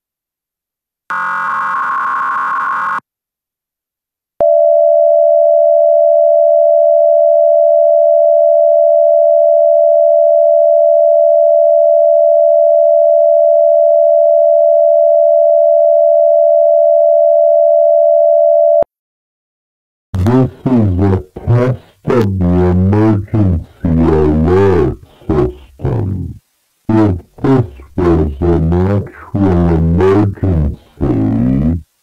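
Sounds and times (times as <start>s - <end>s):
harsh buzzy electronic tone: 1.1s - 3.0s.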